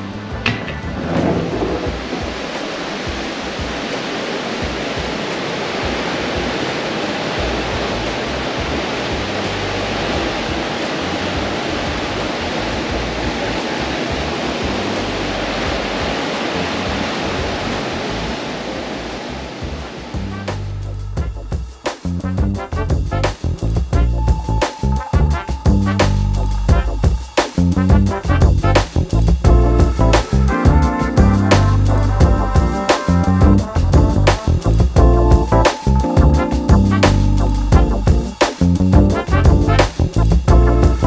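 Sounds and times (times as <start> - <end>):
hiss of churning wake: 0.0 - 22.3, 23.2 - 27.9, 28.8 - 38.9
wind rushing over microphone: 0.2 - 21.4.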